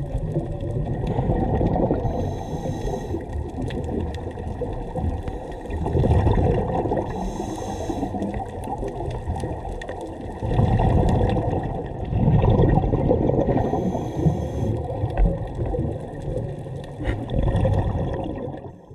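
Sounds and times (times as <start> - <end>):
gurgling exhaled bubbles: 0.0 - 18.9
hissing regulator inhalations: 2.0 - 3.3, 7.1 - 8.4, 13.6 - 14.9.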